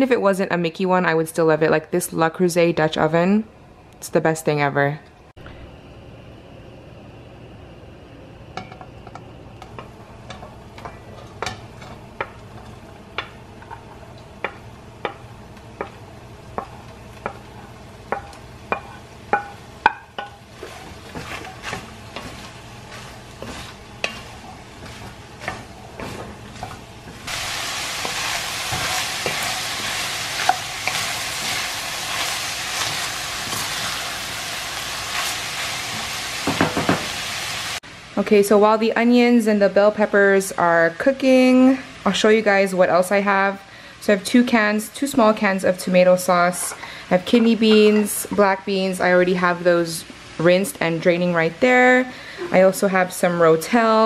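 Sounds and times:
meat and vegetables sizzling: 9.6s - 43.4s
wooden spoon knocking on pot: 18.1s - 20.4s.

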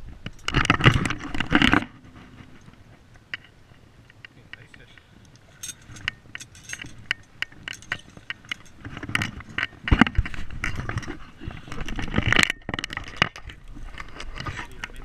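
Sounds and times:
clinks of metal net handle: 5.6s - 10.1s.

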